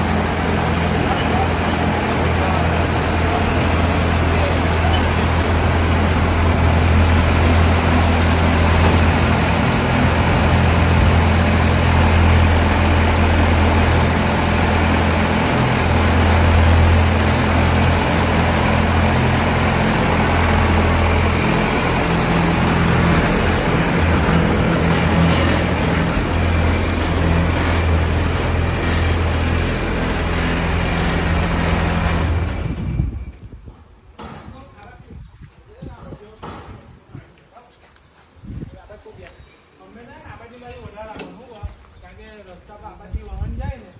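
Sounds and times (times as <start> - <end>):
combine harvester engine humming: 0.0 - 34.5.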